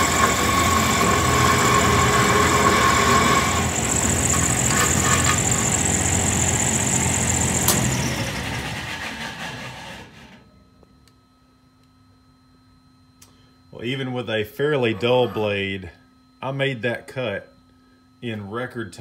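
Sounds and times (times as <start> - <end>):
bandsaw cutting steel: 0.0 - 10.2.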